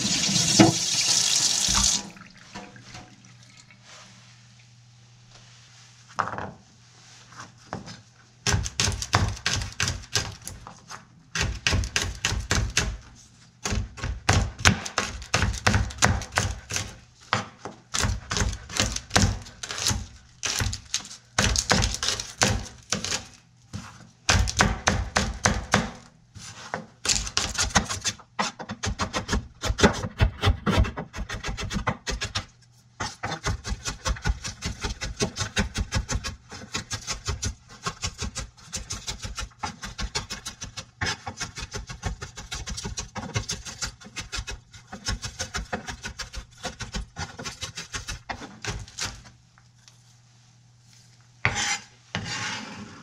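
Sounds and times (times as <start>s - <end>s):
knife chopping on cutting board: 8.4s - 10.6s, 11.4s - 13.0s, 13.6s - 26.0s, 26.8s - 49.3s.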